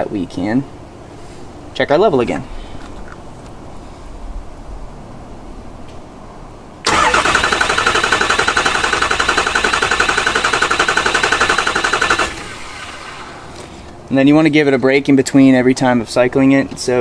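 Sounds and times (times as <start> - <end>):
diesel engine cranking without firing: 6.8 - 14.0.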